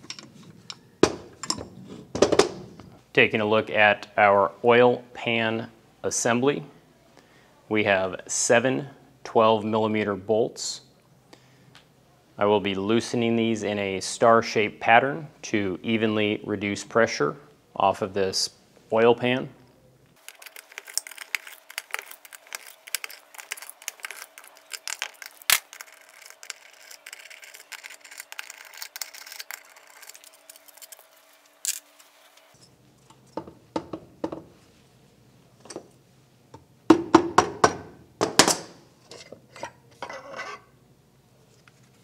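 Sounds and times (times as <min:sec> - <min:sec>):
metal clinks and knocks: 0:00.0 - 0:02.6.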